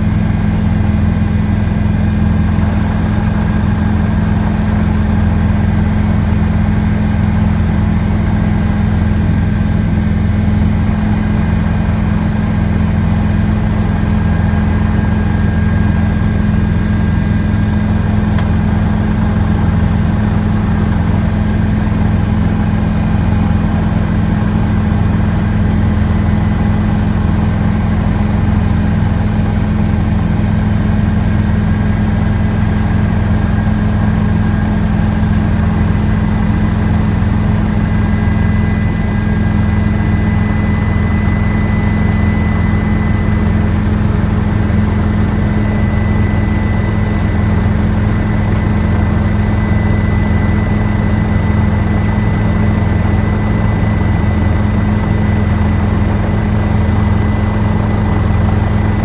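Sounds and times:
helicopter engine and rotor drone: 0.0s - 59.0s.

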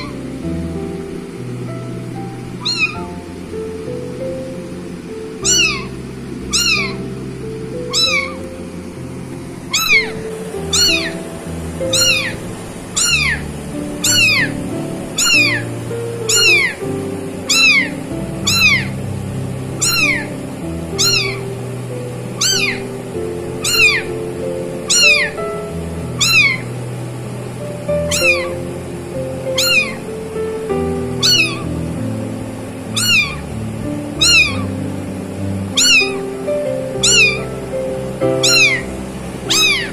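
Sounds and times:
background music: 0.0s - 39.9s
kitten meowing: 2.6s - 3.2s, 5.4s - 7.2s, 7.8s - 8.5s, 9.7s - 11.2s, 11.8s - 13.4s, 14.0s - 14.5s, 15.2s - 15.6s, 16.3s - 16.8s, 17.5s - 19.0s, 19.8s - 21.4s, 22.4s - 22.8s, 23.6s - 24.1s, 24.9s - 25.4s, 26.1s - 26.6s, 28.1s - 28.6s, 29.5s - 30.0s, 31.2s - 31.7s, 32.9s - 33.4s, 34.2s - 34.8s, 35.7s - 36.2s, 36.9s - 37.5s, 38.3s - 39.9s.

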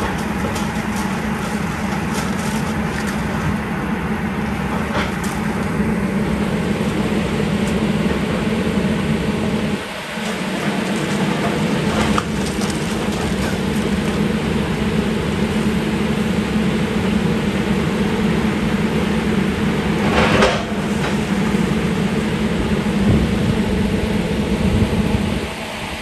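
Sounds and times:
excavator diesel engine running: 0.0s - 26.0s
debris crashing down: 10.3s - 14.3s.

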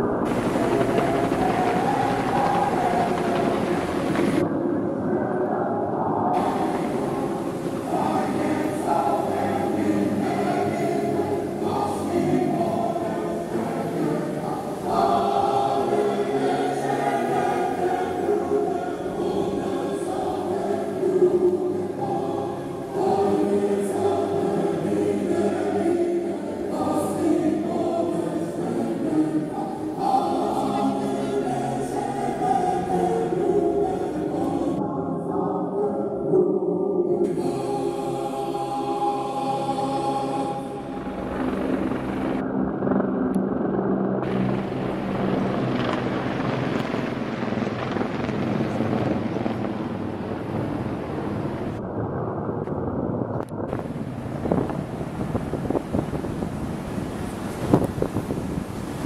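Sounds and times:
choir singing held chords: 0.0s - 4.4s, 6.2s - 42.5s
helicopters droning overhead: 0.0s - 35.8s, 37.5s - 59.0s.

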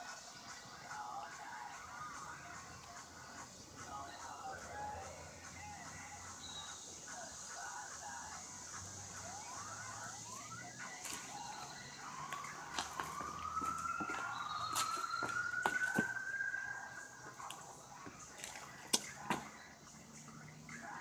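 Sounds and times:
siren wailing: 8.9s - 18.3s.

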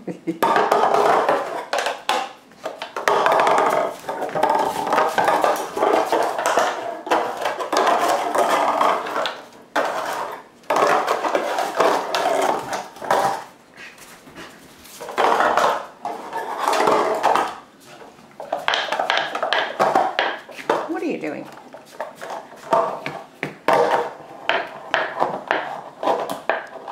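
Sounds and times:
plastic container clattering on floor: 0.4s - 13.5s, 14.9s - 17.6s, 18.4s - 21.0s, 21.8s - 26.9s.

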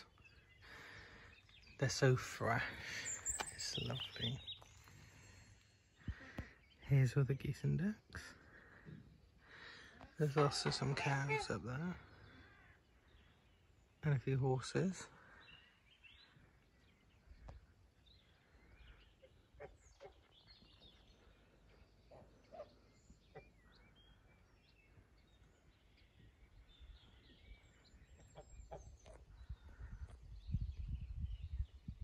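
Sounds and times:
small birds chirping: 0.0s - 32.0s
chickens calling: 8.8s - 12.9s
geese calling: 9.5s - 13.4s
low rumble on microphone: 28.6s - 32.0s.

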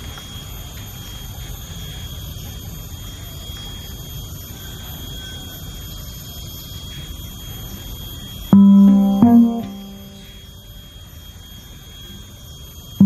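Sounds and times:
constant high-pitched tone: 8.5s - 10.4s.

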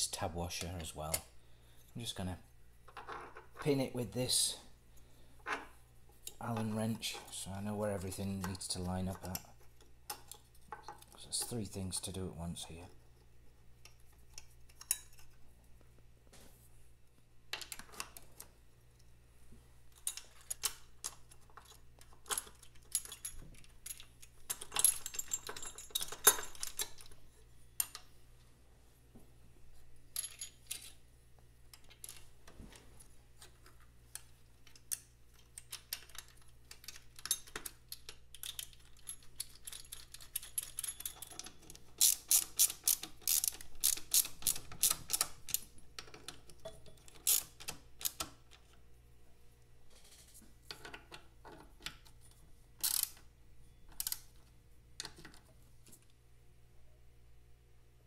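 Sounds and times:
tools clinking against metal: 21.6s - 27.2s, 35.5s - 42.7s.

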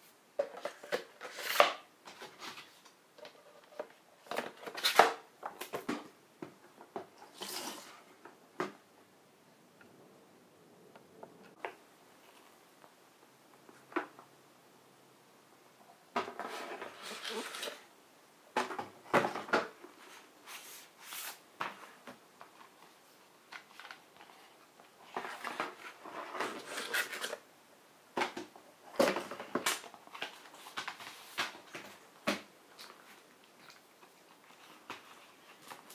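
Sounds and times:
cardboard and paper rustling: 16.2s - 17.9s, 19.1s - 27.4s, 28.9s - 33.2s.

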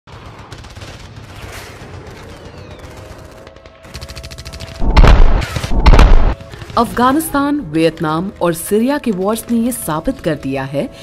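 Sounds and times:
rapid gunfire: 0.1s - 7.2s.

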